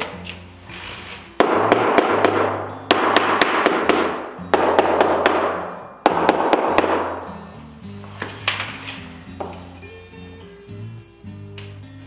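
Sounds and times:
quiet background music: 0.0s - 12.0s
hammer striking wood: 1.4s - 7.3s.

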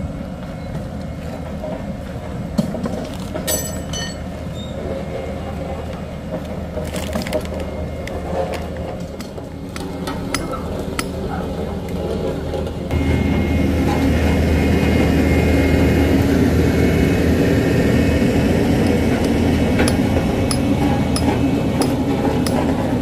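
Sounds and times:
heavy engine running: 0.0s - 23.0s
equipment clinking: 3.5s - 4.2s.

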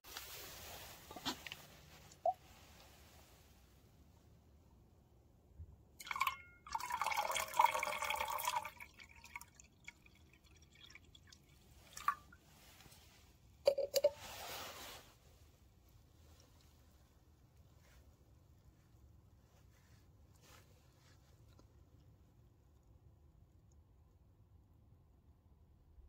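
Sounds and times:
acid solution fizzing: 6.0s - 12.5s
liquid pouring and splashing: 6.0s - 13.0s.

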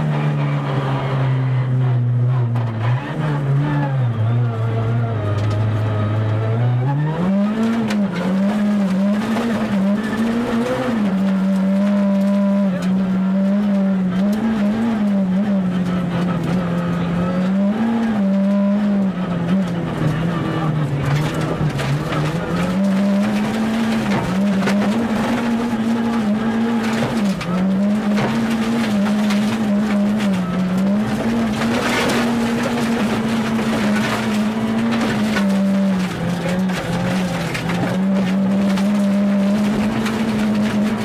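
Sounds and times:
car engine at high revs: 0.0s - 41.0s
gravel crackling under car: 0.0s - 41.0s.

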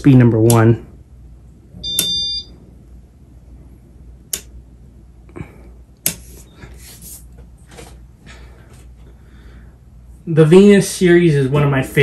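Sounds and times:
sharp clicks: 4.3s - 4.6s.

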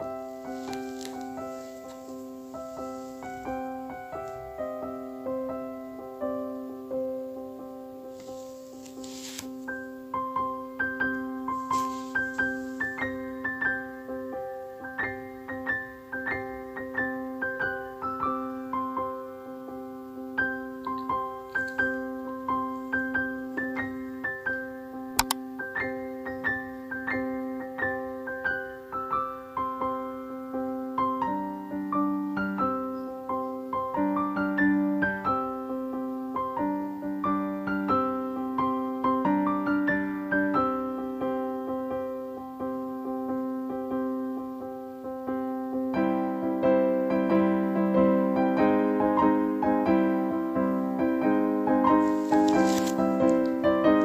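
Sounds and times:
piano music: 0.0s - 54.0s
sharp click: 25.2s - 25.4s.

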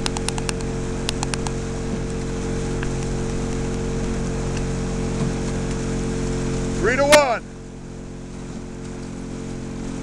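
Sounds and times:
sharp clicks: 0.0s - 1.6s
outboard motor humming: 0.0s - 10.0s
water noise: 0.0s - 10.0s.

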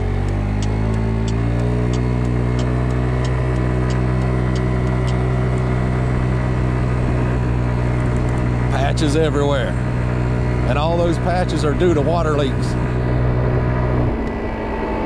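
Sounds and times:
scooter engine accelerating: 0.0s - 15.0s
light high ticking: 0.1s - 5.8s.

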